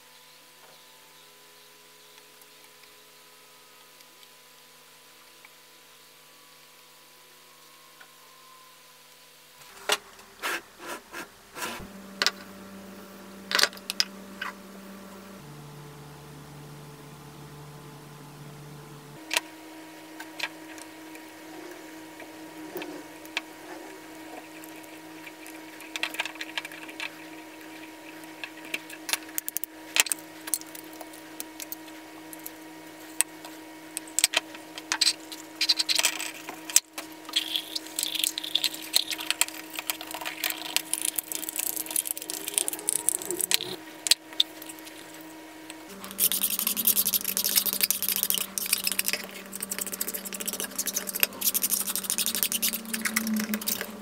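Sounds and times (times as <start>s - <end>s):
scrubbing noise: 10.4s - 11.9s, 45.9s - 54.0s.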